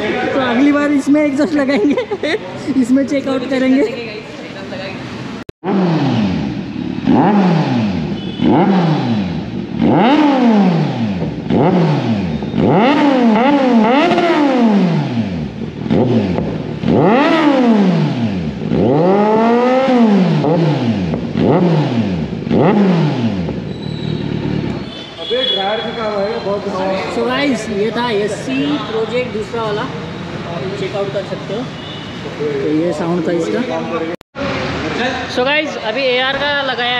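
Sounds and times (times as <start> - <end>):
motorcycle engine revving: 5.1 - 32.4.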